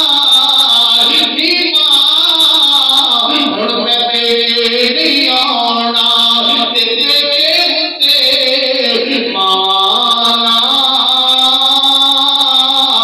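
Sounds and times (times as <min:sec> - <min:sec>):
man chanting into a microphone: 0:00.0 - 0:13.0.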